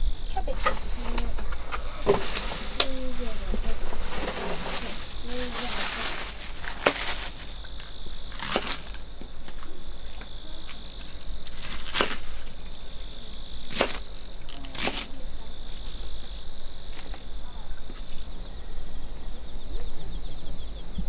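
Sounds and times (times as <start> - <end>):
insects trilling: 0.0 - 21.0
knife cutting cabbage on board: 14.7 - 15.1.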